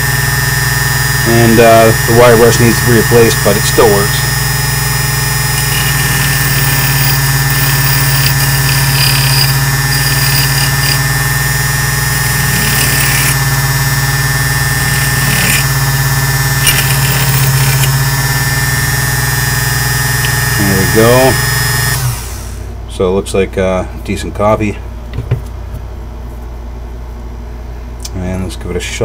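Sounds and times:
electric motor humming: 0.0 - 22.7
key scraping on wire brush: 5.5 - 11.1, 12.1 - 13.4, 14.8 - 15.7.

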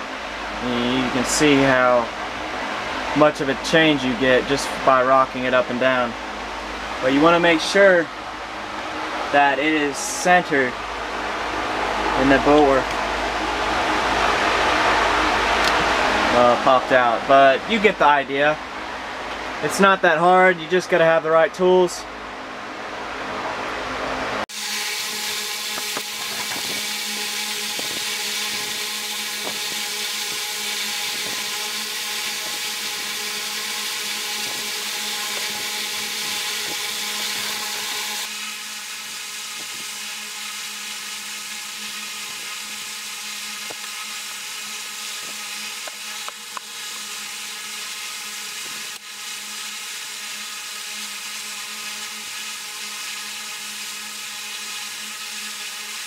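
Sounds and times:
electric machine whir: 24.1 - 56.0.

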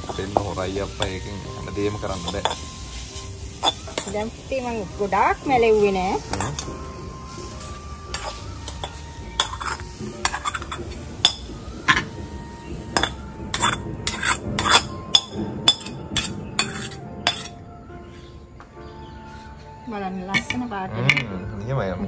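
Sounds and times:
metal spoon scraping a wok: 0.0 - 12.2, 13.0 - 17.6.

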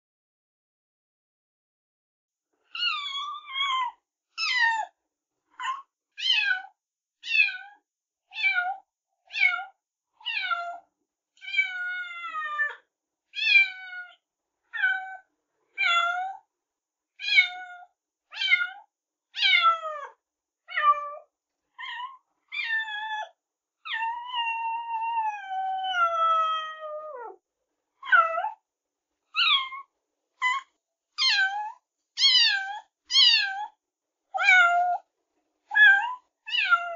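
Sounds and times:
cat meowing: 2.8 - 4.9, 5.6 - 10.8, 11.4 - 12.8, 13.4 - 15.2, 15.8 - 16.4, 17.2 - 27.4, 28.0 - 28.6, 29.4 - 33.8, 34.4 - 35.0, 35.7 - 36.9.

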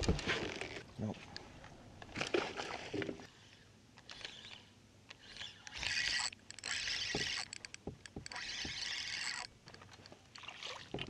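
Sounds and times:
fishing reel cranking: 4.0 - 9.5
light reel clicks: 4.0 - 9.8.

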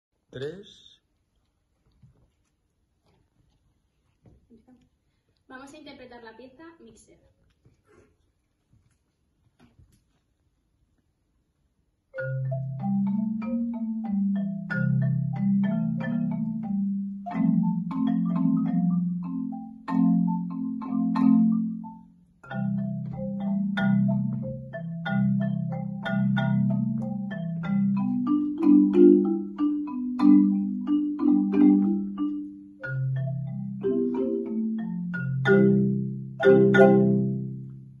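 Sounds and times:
xylophones played with mallets: 12.1 - 38.0.

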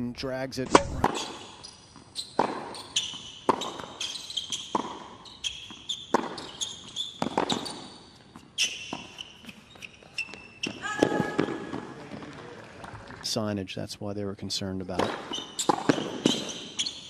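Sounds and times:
tennis racket strikes: 0.6 - 1.4, 2.4 - 5.2, 15.0 - 16.5
tennis ball bounces: 0.7 - 1.4, 2.3 - 13.1, 14.9 - 16.8
shoes squeaking on court: 0.9 - 13.2, 15.0 - 17.0.

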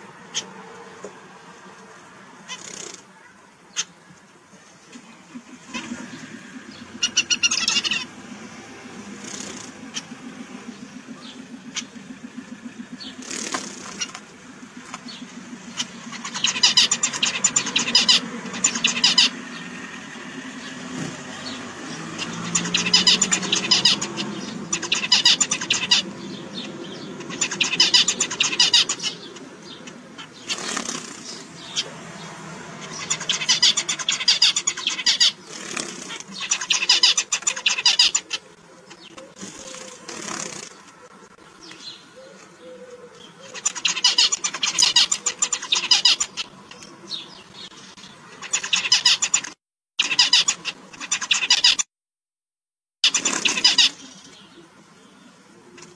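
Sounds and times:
zebra finches singing: 0.0 - 51.9, 53.0 - 55.9
steady low hum: 4.8 - 30.5.

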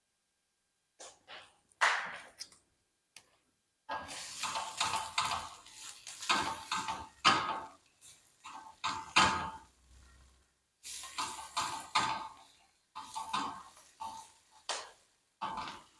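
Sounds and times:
spatula scraping frying pan: 3.9 - 15.9.

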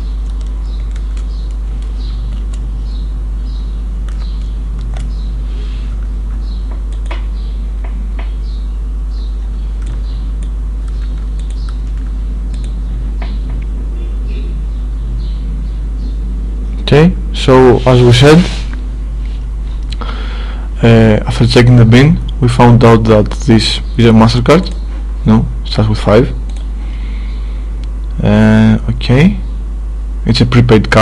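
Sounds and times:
steady low hum: 0.0 - 31.0
computer keyboard keystrokes: 0.2 - 2.7, 4.0 - 5.2, 6.7 - 8.4, 9.8 - 13.7
mouse clicks: 6.7 - 8.4, 9.8 - 13.7.

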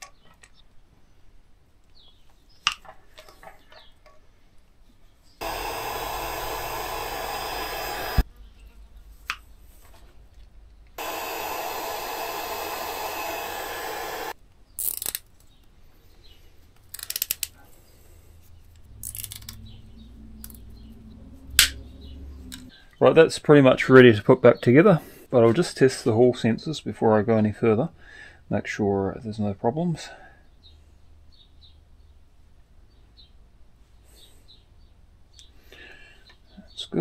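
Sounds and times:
heat gun blowing: 5.4 - 8.3, 11.0 - 14.4
wires rustling: 18.6 - 22.7.

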